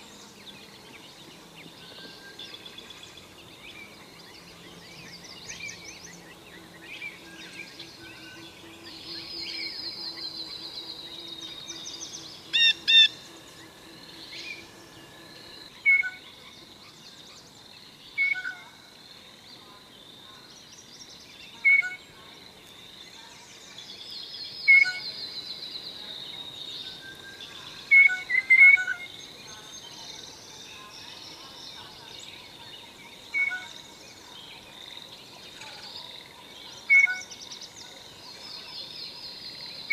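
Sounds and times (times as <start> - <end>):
birdsong: 0.0 - 39.9
blue jay calling: 12.5 - 13.2.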